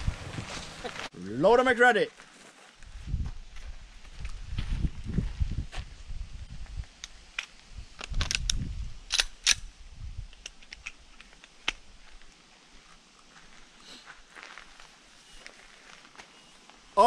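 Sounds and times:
pistol clicks and clacks: 0:08.1 - 0:09.6.

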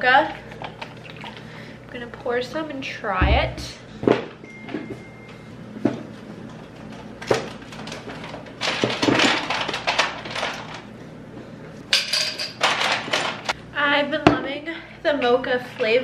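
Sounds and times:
knocks in refrigerator: 0:03.2 - 0:04.2
bottles and containers rattling: 0:07.3 - 0:10.8, 0:12.0 - 0:13.5.

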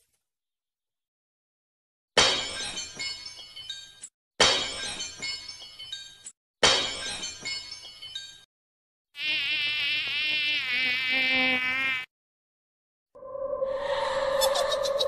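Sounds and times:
glass shattering: 0:02.2 - 0:08.4
housefly buzzing: 0:09.2 - 0:12.1.

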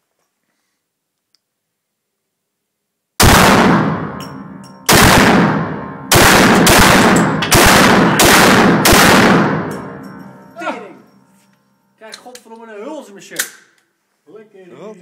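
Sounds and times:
loud pistol shots with echo: 0:03.2 - 0:10.0.

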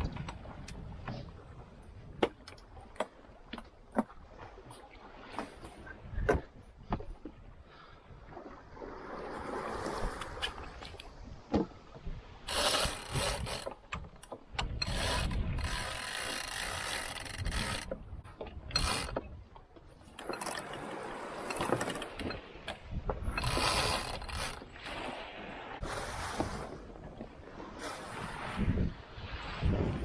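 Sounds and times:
sea rushing: 0:00.0 - 0:30.0
wind: 0:00.0 - 0:30.0
winch ratcheting and clicking: 0:12.5 - 0:18.0, 0:18.6 - 0:19.3, 0:20.1 - 0:24.6.

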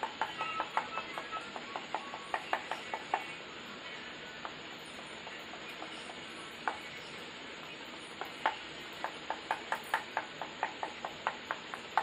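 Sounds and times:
fork tapping on wooden board: 0:08.4 - 0:12.0.

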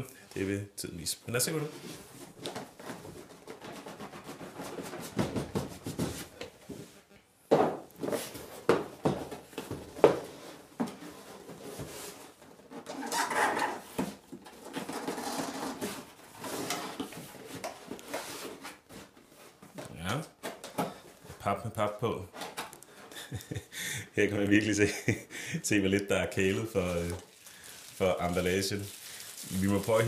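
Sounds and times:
cardboard rubbing and scraping: 0:01.7 - 0:06.9, 0:14.6 - 0:19.6.

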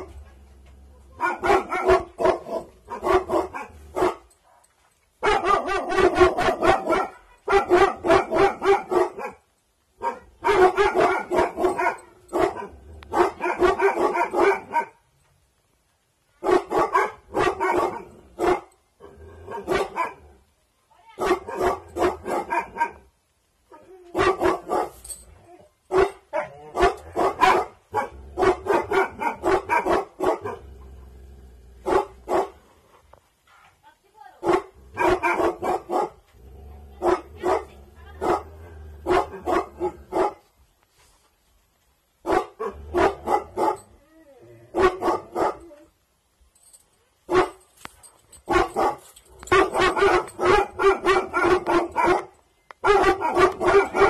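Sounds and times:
dog barking: 0:01.1 - 0:09.4, 0:10.0 - 0:15.0, 0:16.4 - 0:18.7, 0:19.5 - 0:20.2, 0:21.2 - 0:23.1, 0:23.7 - 0:25.0, 0:25.9 - 0:30.6, 0:31.8 - 0:32.6, 0:34.4 - 0:36.2, 0:37.0 - 0:40.4, 0:42.2 - 0:43.9, 0:44.7 - 0:45.8, 0:47.3 - 0:47.6, 0:48.5 - 0:54.0.

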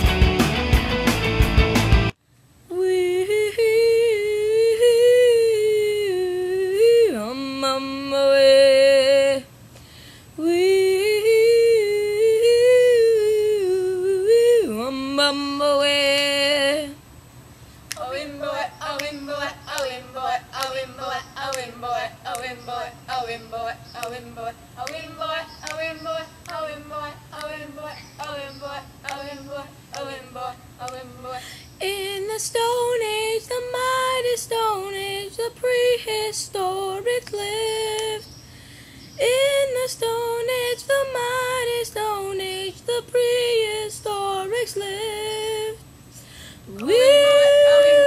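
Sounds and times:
voices singing: 0:17.9 - 0:38.4, 0:39.2 - 0:45.8, 0:46.7 - 0:48.0
person humming: 0:46.7 - 0:48.0.

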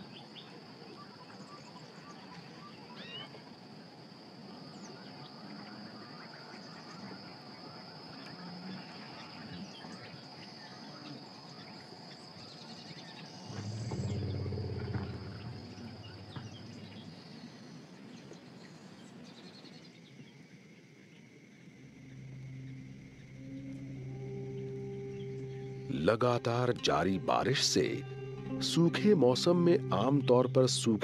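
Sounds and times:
background hiss: 0:00.0 - 0:31.0
insects chirping: 0:00.0 - 0:31.0
low steady chirring: 0:00.0 - 0:31.0
loud low sound: 0:13.5 - 0:17.2.

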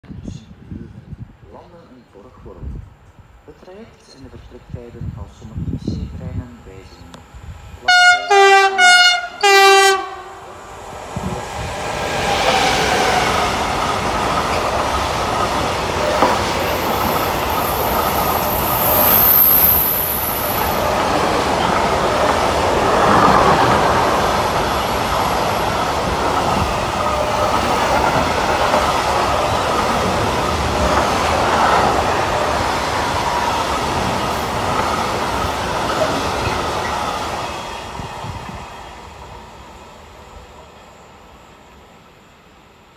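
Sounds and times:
train wheels clattering over rail joints: 0:12.2 - 0:18.6.

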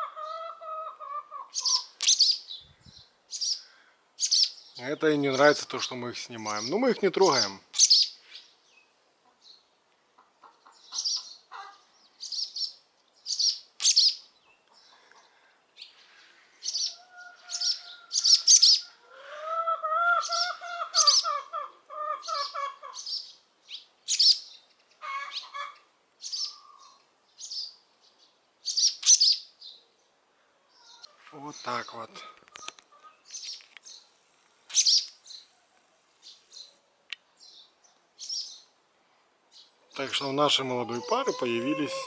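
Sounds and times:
swallows giving alarm calls: 0:01.5 - 0:08.5, 0:10.8 - 0:11.5, 0:12.2 - 0:14.3, 0:15.8 - 0:18.8, 0:20.2 - 0:21.4, 0:22.1 - 0:27.8, 0:28.6 - 0:29.5, 0:34.7 - 0:35.4, 0:38.2 - 0:38.7, 0:40.0 - 0:42.0.

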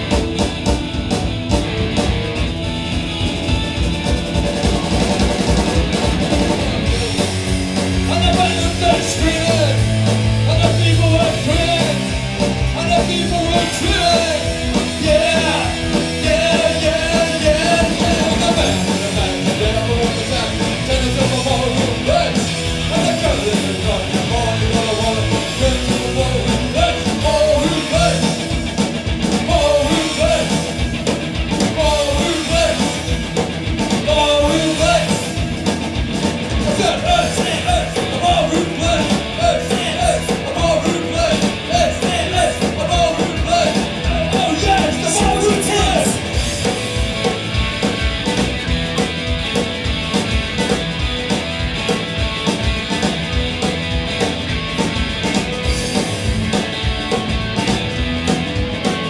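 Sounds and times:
drum kit: 0:00.0 - 0:59.0
electric guitars: 0:00.0 - 0:59.0
person singing: 0:08.1 - 0:12.1, 0:12.7 - 0:28.4, 0:29.4 - 0:30.8, 0:31.6 - 0:33.1, 0:33.9 - 0:35.4, 0:36.6 - 0:46.3.

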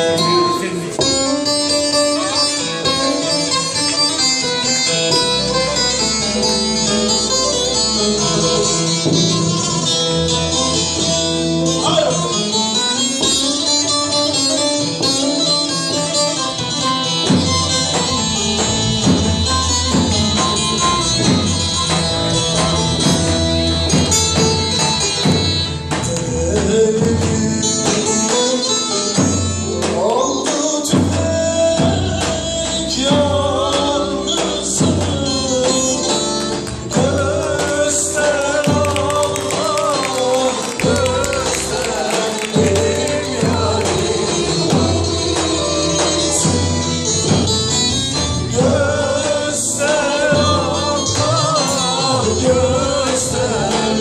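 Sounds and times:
folk band with saz and drum: 0:00.0 - 0:54.0
woman singing: 0:26.2 - 0:47.2.

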